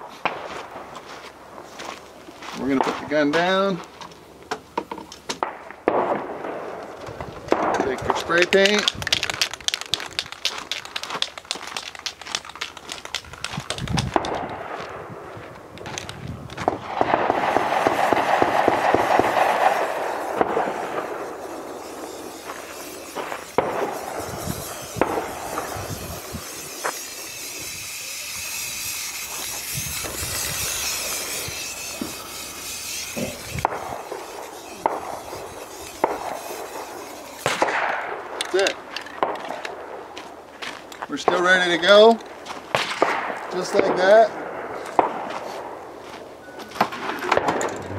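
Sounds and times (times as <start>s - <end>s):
footsteps on gravel: 0.0s - 4.4s, 6.8s - 27.7s, 28.3s - 37.6s, 38.4s - 42.8s, 44.8s - 47.9s
scattered clicks: 7.5s - 14.6s
spray paint can hissing: 7.9s - 14.4s, 17.3s - 38.6s.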